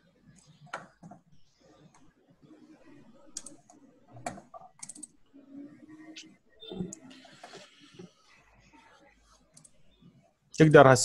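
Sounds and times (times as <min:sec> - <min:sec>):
computer keyboard clicks: 0:03.3 - 0:03.6, 0:04.2 - 0:05.1.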